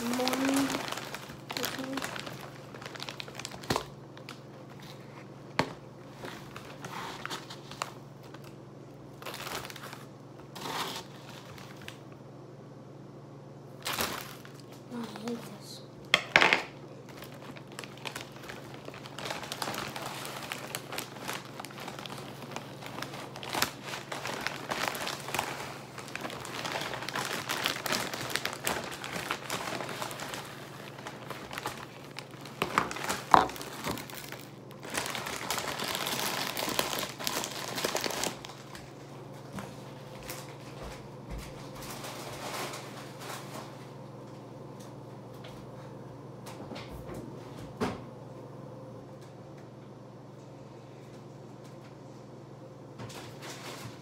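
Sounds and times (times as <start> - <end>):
plastic bag crinkling: 0.0 - 12.2, 13.7 - 15.7, 16.3 - 40.8, 41.7 - 43.8, 53.1 - 54.0
faint steady hum: 0.0 - 54.0.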